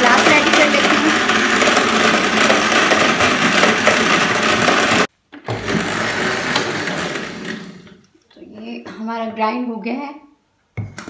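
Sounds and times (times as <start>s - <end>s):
blender motor running: 0.0s - 8.0s.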